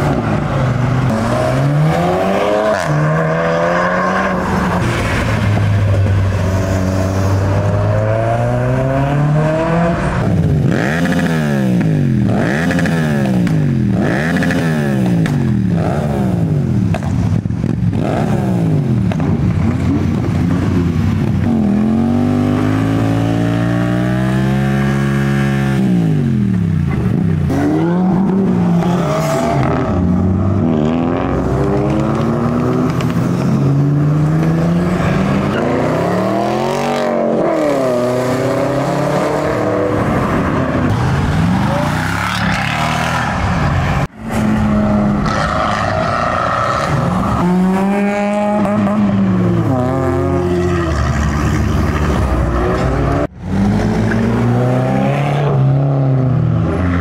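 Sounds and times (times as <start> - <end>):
motorcycle engine revving: 6.9 - 43.4.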